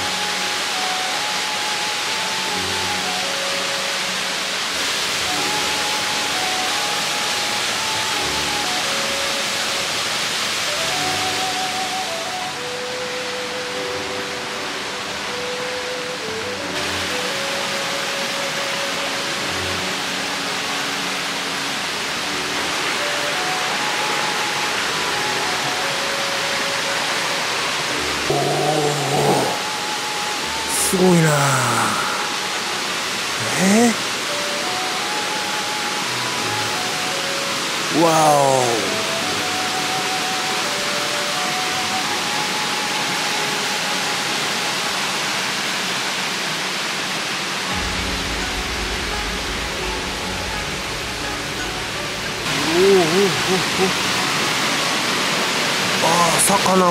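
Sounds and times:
stream rushing over rocks: 0:00.0 - 0:56.9.

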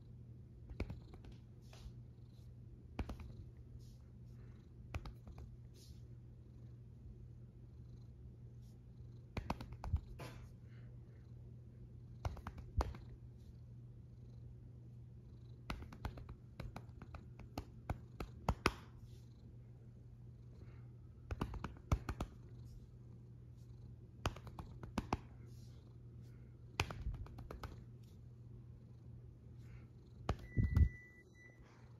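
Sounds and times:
cat purring: 0:00.0 - 0:31.0
hand stroking fur: 0:00.7 - 0:06.1, 0:15.7 - 0:19.3.

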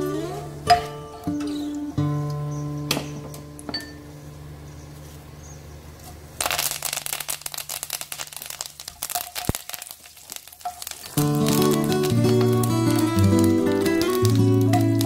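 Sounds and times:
spices crackling in hot oil: 0:06.0 - 0:15.0.

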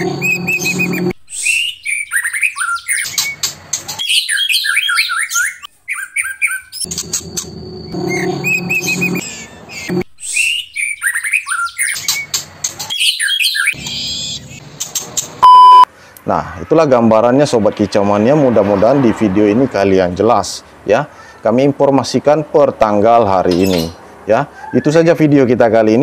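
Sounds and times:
bird song with chirps and trills: 0:00.0 - 0:15.3, 0:23.5 - 0:24.0.

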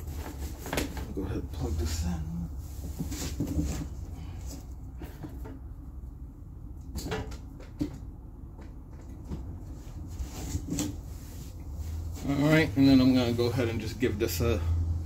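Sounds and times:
handling clicks and knocks: 0:06.8 - 0:09.6.

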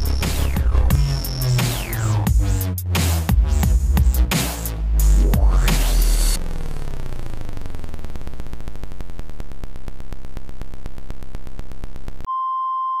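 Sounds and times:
electronic glitch buzz: 0:00.0 - 0:02.7, 0:05.0 - 0:12.3
high electronic beep: 0:12.3 - 0:13.0.

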